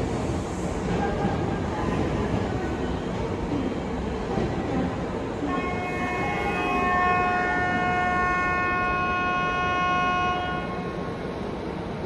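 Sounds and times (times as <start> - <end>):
train horn blast: 5.5 - 11.0.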